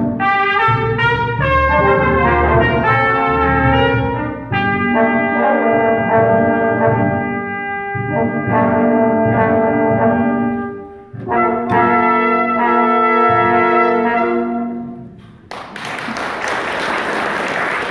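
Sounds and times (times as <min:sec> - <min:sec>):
brass band playing chords: 0:00.0 - 0:15.5
applause: 0:15.5 - 0:17.9.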